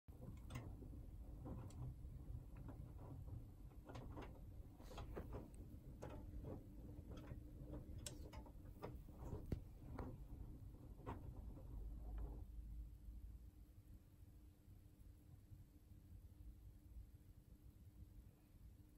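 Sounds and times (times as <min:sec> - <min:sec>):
laundry clicks and soft knocks: 0:00.1 - 0:12.6
washing machine motor hum: 0:00.1 - 0:13.0.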